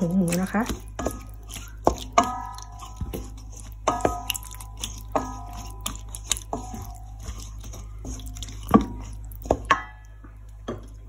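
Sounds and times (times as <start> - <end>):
salad squelching: 0.0 - 10.2
spatula knocking metal bowl: 0.7 - 4.4.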